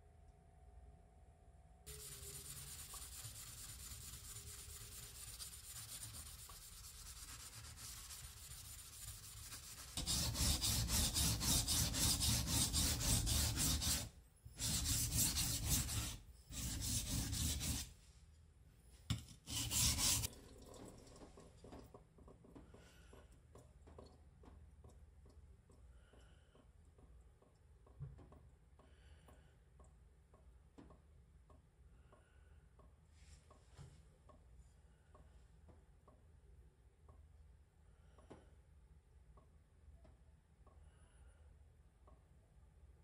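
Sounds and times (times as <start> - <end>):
knife scraping on whetstone: 9.3 - 17.9, 19.2 - 20.3.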